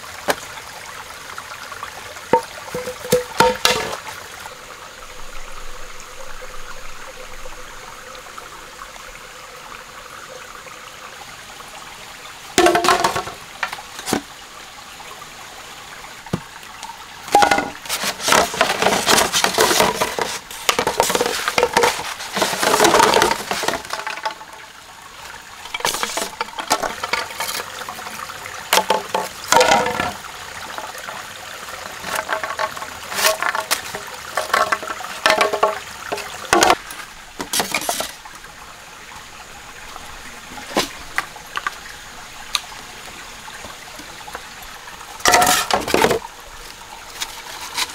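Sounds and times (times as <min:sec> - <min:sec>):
steady water stream: 0:00.0 - 0:47.9
water pouring and splashing: 0:00.0 - 0:47.9
hollow bamboo knocks: 0:02.3 - 0:04.0, 0:12.6 - 0:14.2, 0:17.3 - 0:24.4, 0:28.7 - 0:30.2, 0:32.1 - 0:38.1.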